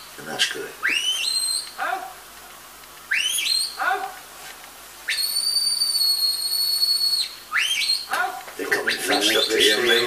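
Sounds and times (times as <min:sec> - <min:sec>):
shepherd's whistle: 0:00.8 - 0:01.7, 0:03.1 - 0:03.8, 0:05.1 - 0:08.1.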